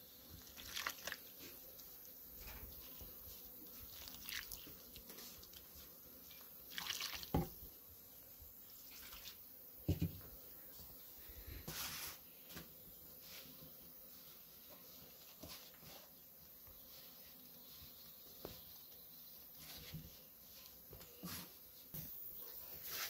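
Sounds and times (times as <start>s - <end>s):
water pouring from jug: 6.7s - 7.5s.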